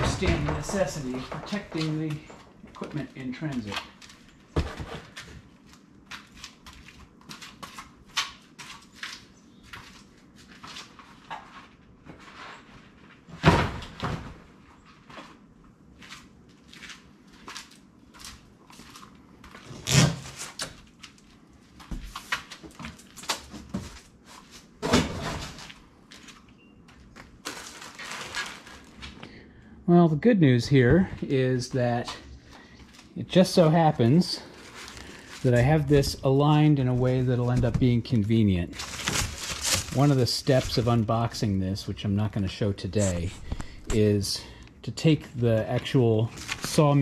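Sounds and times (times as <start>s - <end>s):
loud thumps: 0.0s - 2.0s
cardboard crackling and scraping: 0.0s - 7.8s, 27.4s - 29.1s, 34.1s - 41.1s, 46.2s - 47.0s.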